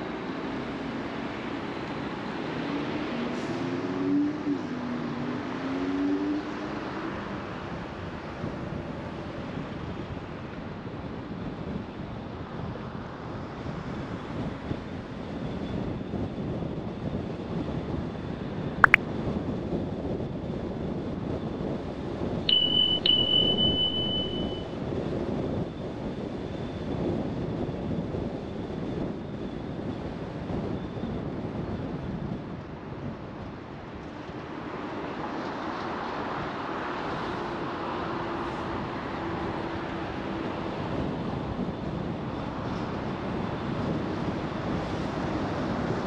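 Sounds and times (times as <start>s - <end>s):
car road and wind noise: 0.0s - 46.0s
high electronic beep: 22.5s - 24.8s.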